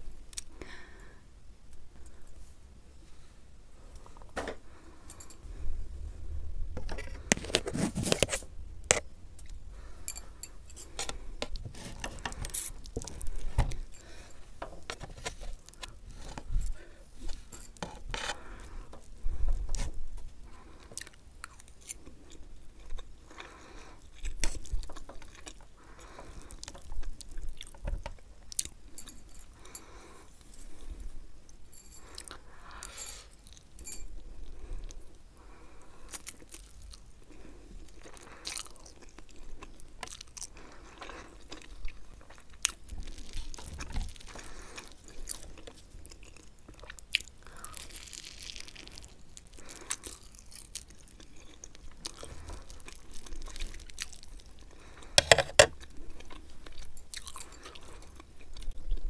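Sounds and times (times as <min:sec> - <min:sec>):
chewing noodles: 0:36.1 - 0:59.0
metal fork scraping a plate: 0:55.2 - 0:55.7.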